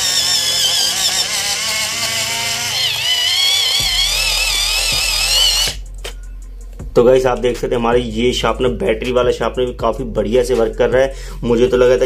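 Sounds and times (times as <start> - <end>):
electric pencil sharpener whine: 0.0 - 5.8.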